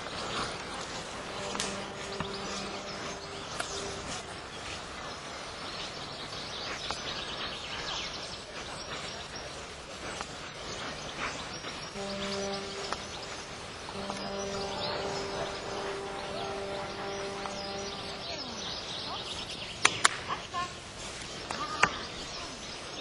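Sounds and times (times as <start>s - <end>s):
low hum: 0.0s - 5.6s, 11.2s - 19.8s
outdoor background noise: 0.0s - 23.0s.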